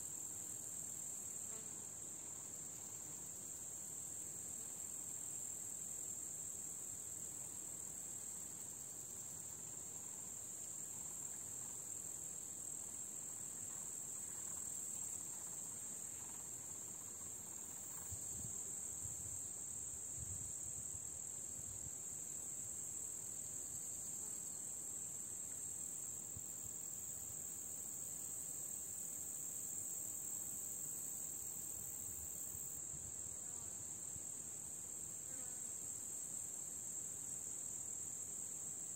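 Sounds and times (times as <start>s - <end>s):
insects chirring: 0.0s - 38.9s
higher-pitched insect: 13.4s - 38.9s.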